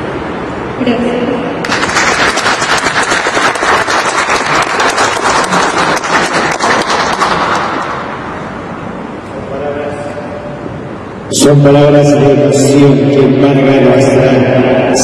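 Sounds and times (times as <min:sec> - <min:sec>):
audience applauding: 0:01.6 - 0:08.2.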